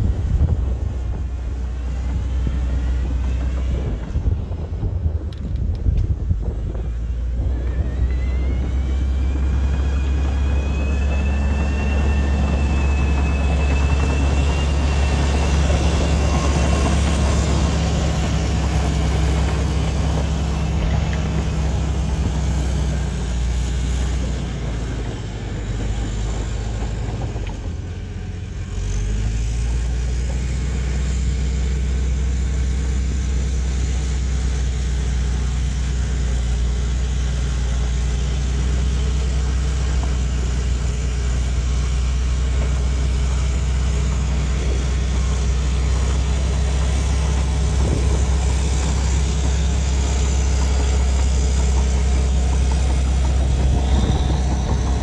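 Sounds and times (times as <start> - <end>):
high whine: 0.0 - 29.0, 40.2 - 55.0
diesel dozer engine running: 0.0 - 55.0.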